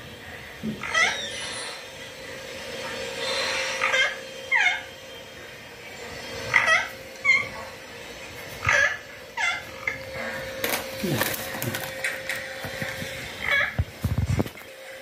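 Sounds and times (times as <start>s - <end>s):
faint steady hum: 0.0s - 15.0s
parakeet squawks: 0.4s - 2.0s, 2.9s - 5.0s, 6.4s - 10.6s, 13.4s - 13.8s
noisy rustle: 5.0s - 15.0s.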